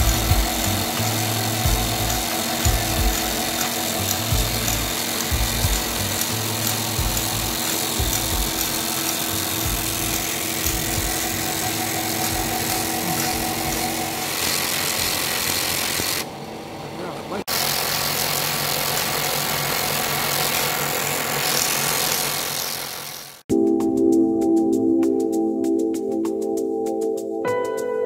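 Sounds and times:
tape reader motor hum: 0.0 - 22.8.

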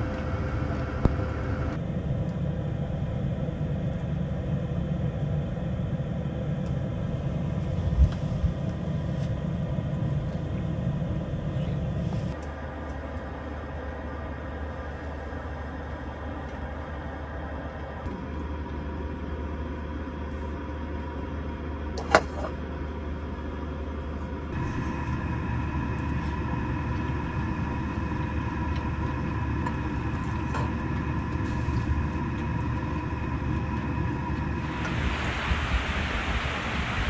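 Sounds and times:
low mechanical hum: 0.0 - 37.0
even hiss: 34.6 - 37.0.

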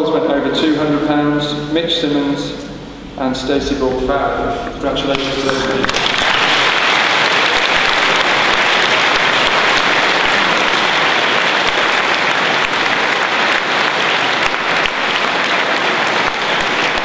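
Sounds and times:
crowd applauding in large hall: 5.0 - 17.0.

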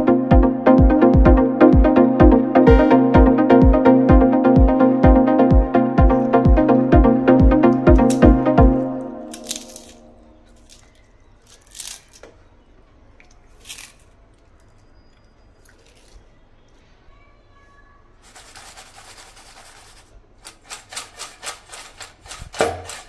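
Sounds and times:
potato chips crackling in a bowl: 9.3 - 16.7
bowl rattling shakes: 18.2 - 23.0.

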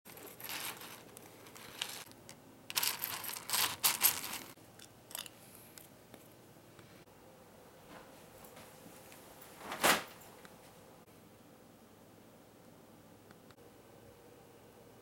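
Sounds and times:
cereal rattling in a bowl: 0.1 - 2.1, 2.7 - 5.3.

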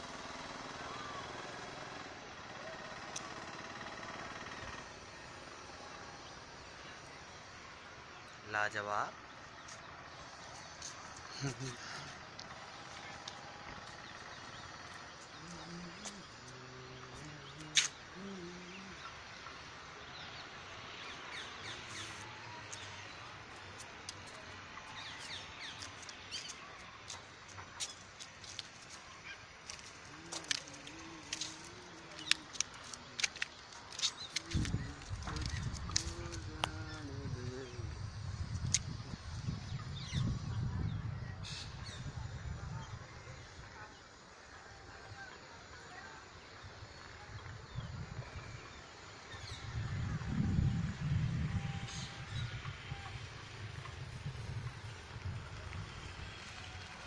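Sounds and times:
outdoor background noise: 0.0 - 57.0
birds chirping: 2.3 - 44.2.

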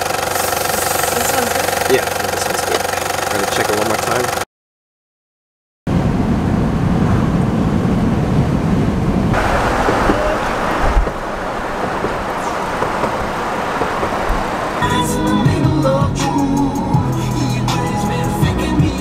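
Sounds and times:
car road and engine noise: 0.0 - 4.5, 5.9 - 19.0
rushing wind and road noise: 5.9 - 16.1.

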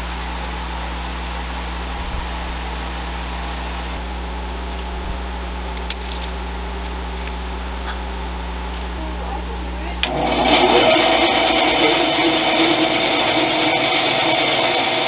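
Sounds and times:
electric motor humming: 10.0 - 15.0.

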